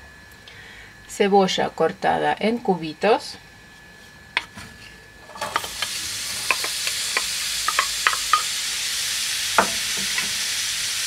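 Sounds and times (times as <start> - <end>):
onion sizzling in oil: 5.2 - 11.0
oil pops and crackles: 5.4 - 8.5.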